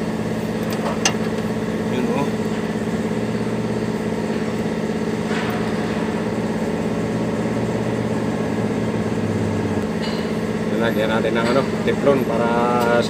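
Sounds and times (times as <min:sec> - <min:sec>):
diesel truck engine idling: 0:00.0 - 0:05.2.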